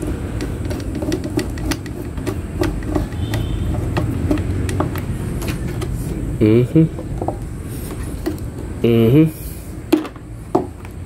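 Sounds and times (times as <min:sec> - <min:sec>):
metal clicks and taps: 0:00.0 - 0:06.0.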